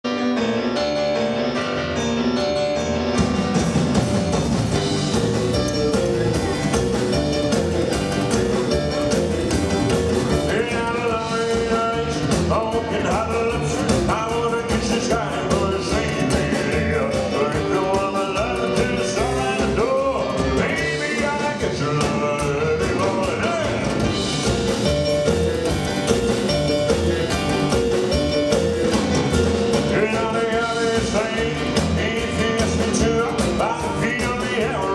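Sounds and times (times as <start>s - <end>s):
rock and roll band playing: 0.0s - 34.9s
man singing: 10.3s - 24.3s, 29.6s - 34.9s.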